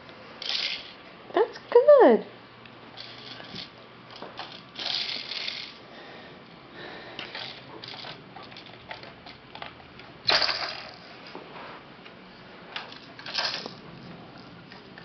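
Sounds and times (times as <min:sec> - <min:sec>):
plastic toy clicking and rattling: 0:00.4 - 0:01.0, 0:03.0 - 0:05.8, 0:07.2 - 0:11.0, 0:12.8 - 0:13.8.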